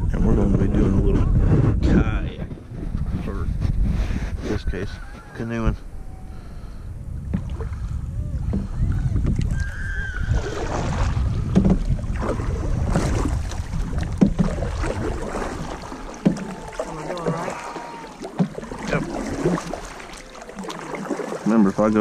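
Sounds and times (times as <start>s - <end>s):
wind rumble on microphone: 0.0s - 17.3s
paddles knocking on hull: 7.2s - 7.7s, 8.4s - 22.0s.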